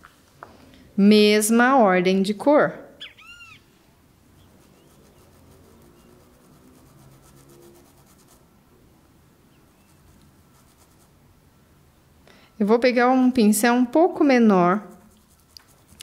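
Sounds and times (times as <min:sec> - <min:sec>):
paintbrush brushing on fabric: 0:04.2 - 0:08.5, 0:09.6 - 0:11.2, 0:14.7 - 0:16.0.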